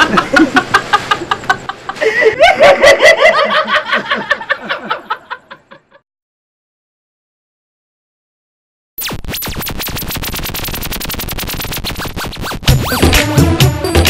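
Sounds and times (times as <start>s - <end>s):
man laughing hard: 0.0s - 6.0s.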